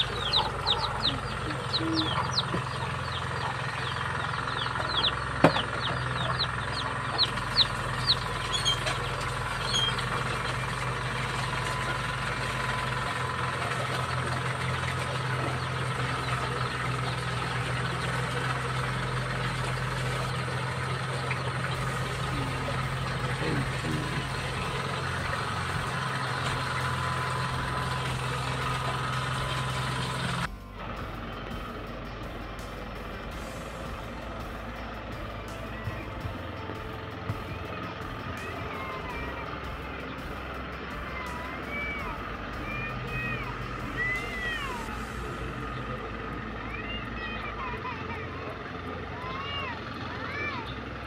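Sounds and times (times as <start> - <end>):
chickens clucking: 0.0 - 30.5
hand tractor engine running: 0.0 - 51.0.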